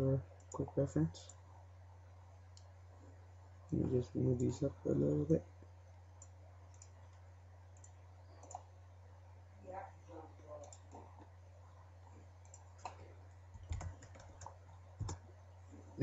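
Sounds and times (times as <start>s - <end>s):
low steady hum: 0.0s - 16.0s
faint mouse clicks: 6.2s - 8.7s, 12.4s - 13.0s.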